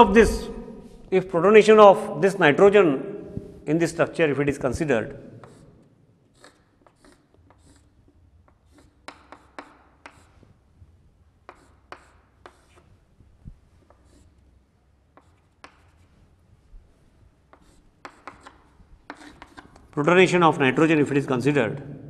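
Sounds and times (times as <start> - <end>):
chalk scratching on blackboard: 5.4 - 10.7, 11.4 - 16.4, 17.1 - 20.0.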